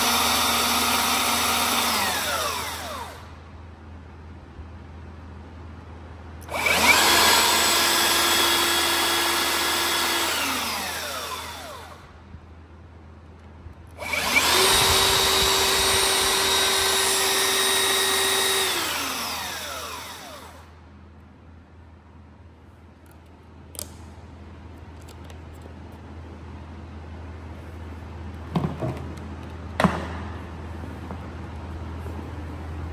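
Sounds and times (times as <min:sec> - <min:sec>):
belt sander running: 0:00.0 - 0:03.3, 0:06.5 - 0:12.1, 0:14.0 - 0:20.7.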